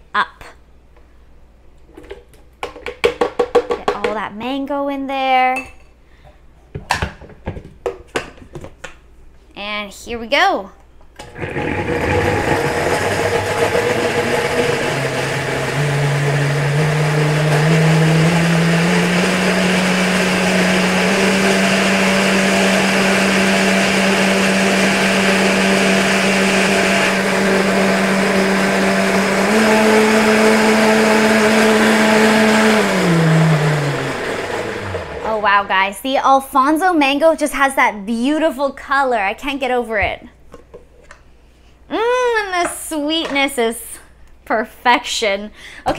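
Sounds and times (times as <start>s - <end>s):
electric blender running: 11.2s - 35.4s.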